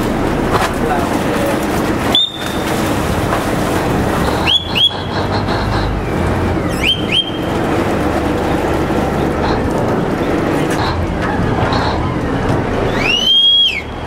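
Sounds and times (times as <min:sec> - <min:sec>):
boat engine: 0:00.0 - 0:14.0
churning water: 0:00.0 - 0:14.0
boat whistle blasts: 0:02.1 - 0:02.7, 0:04.4 - 0:05.1, 0:06.8 - 0:07.4, 0:12.9 - 0:14.0.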